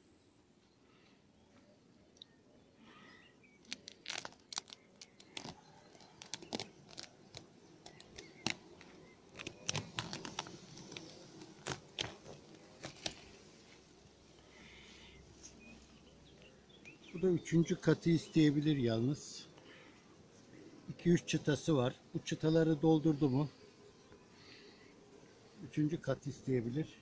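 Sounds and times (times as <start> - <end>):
plastic sheet crinkling as peeled: 3.6 - 13.3.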